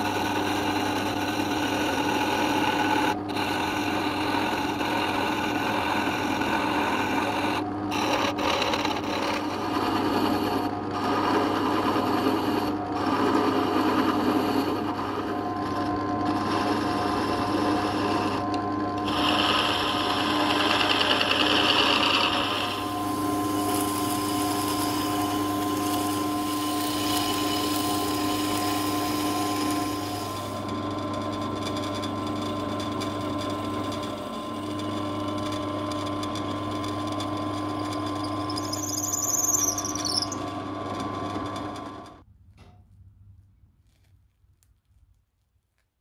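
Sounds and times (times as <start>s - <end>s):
chisel cutting wood: 0.0s - 42.2s
small woodworking machine running: 0.0s - 42.2s
high squeal falling in pitch: 38.1s - 40.5s.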